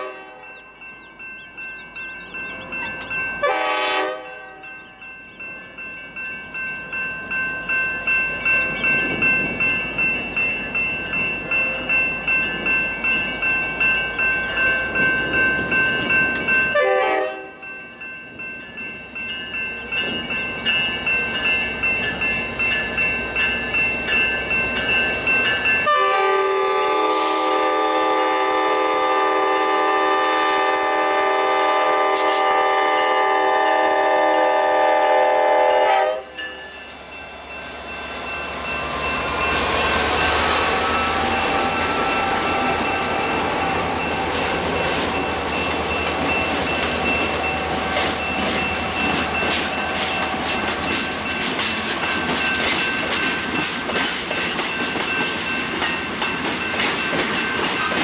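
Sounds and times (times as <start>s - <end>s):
locomotive air horn blasts: 0.0s - 0.4s, 3.4s - 4.7s, 16.7s - 17.6s, 25.9s - 36.4s
crossing bell ringing: 0.0s - 58.0s.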